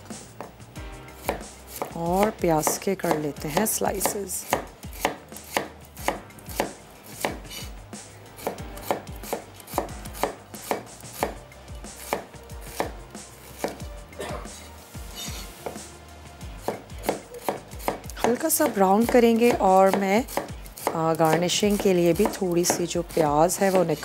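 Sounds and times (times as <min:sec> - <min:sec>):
knife chopping on wooden board: 0:01.2 - 0:07.7, 0:08.4 - 0:14.3, 0:15.2 - 0:15.9, 0:16.6 - 0:24.0.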